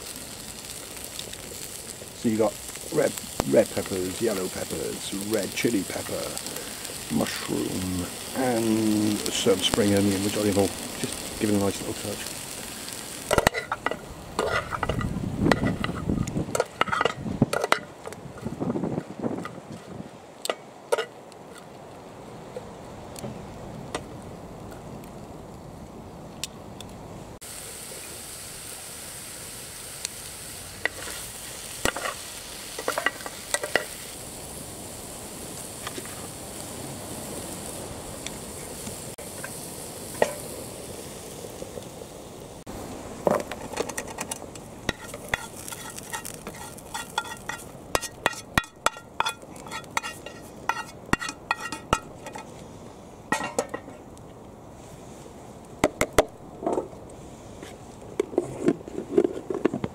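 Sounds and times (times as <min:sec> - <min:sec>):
vegetables sizzling in frying pan: 0:00.0 - 0:19.0, 0:27.4 - 0:53.9
metal tongs clicking and scraping: 0:13.3 - 0:17.8, 0:43.7 - 0:52.5.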